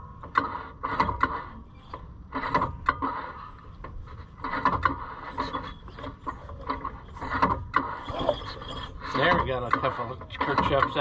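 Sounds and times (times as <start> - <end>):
metal rubbing and scraping: 0.4 - 11.0.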